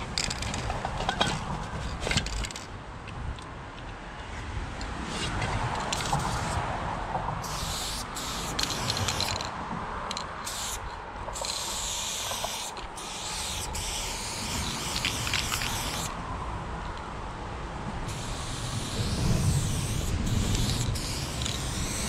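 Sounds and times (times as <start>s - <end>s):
spray paint can hissing: 5.9s - 6.6s, 7.4s - 9.5s, 10.1s - 16.2s, 18.0s - 22.0s.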